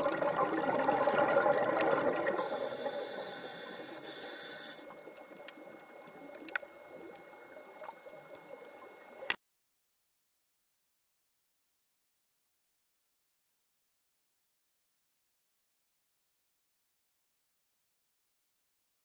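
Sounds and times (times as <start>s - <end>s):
underwater bubbles gurgling: 0.0s - 9.4s
underwater crackle with clicks: 0.0s - 9.4s.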